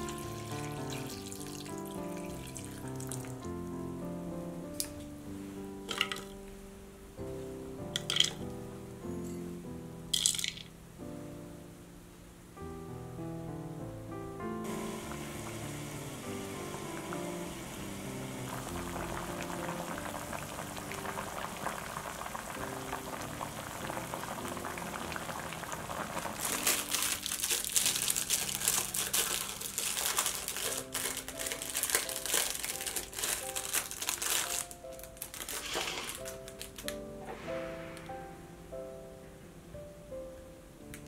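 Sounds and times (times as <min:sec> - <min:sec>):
plastic wrap crinkling: 0:00.0 - 0:03.4, 0:25.4 - 0:37.0
soft background music: 0:00.0 - 0:41.0
pot simmering with light bubbling: 0:14.7 - 0:31.9.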